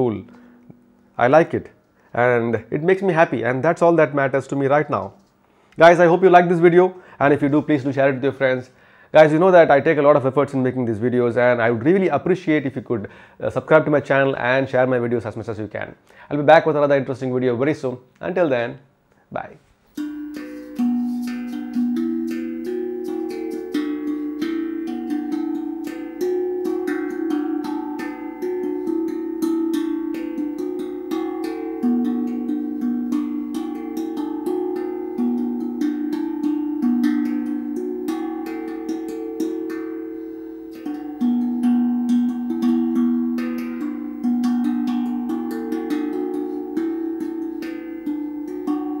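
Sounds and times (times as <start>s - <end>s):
steel tongue drum melody: 0.0s - 1.4s, 19.9s - 49.0s.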